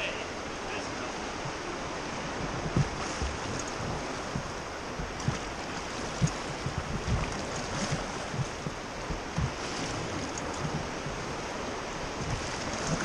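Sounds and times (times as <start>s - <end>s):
river water rushing: 0.0s - 13.0s
low thumps: 2.2s - 11.4s.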